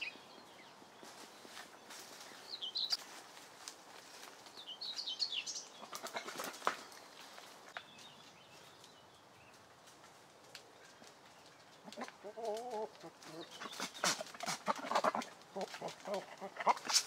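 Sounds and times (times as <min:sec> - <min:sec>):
small bird chirping: 0:00.0 - 0:03.1, 0:04.5 - 0:09.7
twigs and leaves rustling: 0:00.0 - 0:17.0
goat bleating: 0:14.5 - 0:16.9.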